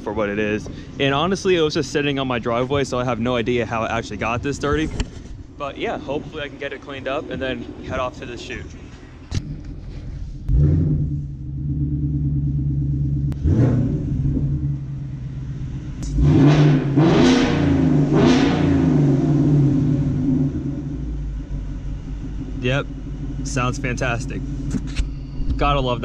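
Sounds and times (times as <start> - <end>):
car engine idling and revving: 0.0 - 26.0.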